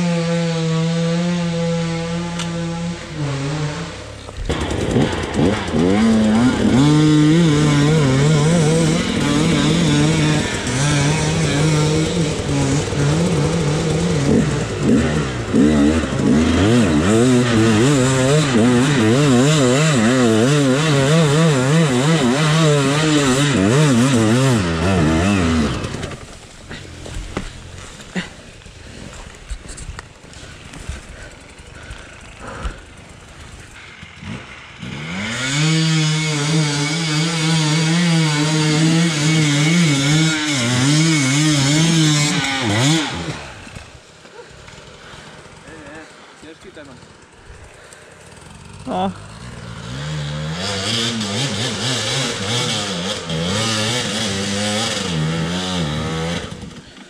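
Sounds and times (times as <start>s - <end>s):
dirt bike engine revving: 0.0s - 57.0s.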